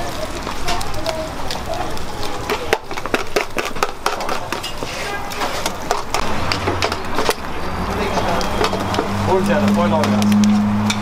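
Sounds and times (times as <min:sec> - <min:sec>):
voices in background: 0:00.0 - 0:10.5
utensils clicking and knocking: 0:02.5 - 0:07.5.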